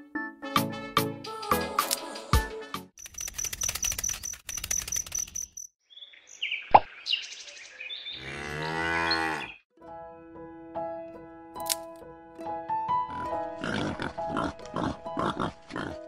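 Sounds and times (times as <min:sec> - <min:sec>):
fast light ticking: 0:03.0 - 0:05.7
high chirp: 0:03.0 - 0:07.6
cow mooing: 0:08.2 - 0:09.6.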